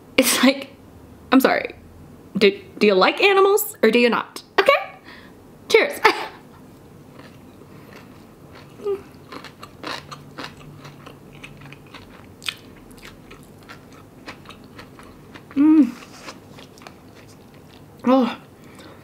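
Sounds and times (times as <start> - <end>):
chewing food: 7.1 - 19.0
person humming: 15.6 - 16.0
soft crunches: 15.8 - 17.6.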